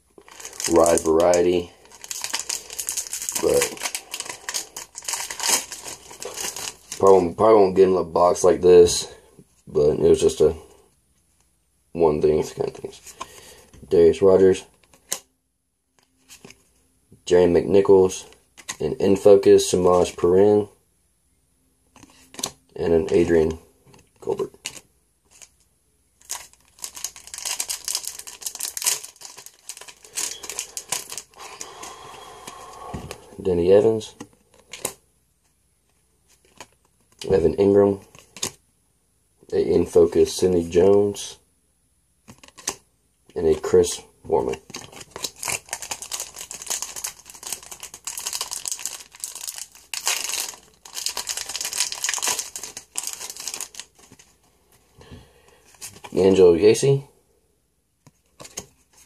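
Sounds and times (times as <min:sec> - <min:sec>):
foil wrapper crinkling: 0:00.2 - 0:07.2, 0:26.2 - 0:32.6, 0:44.4 - 0:54.4.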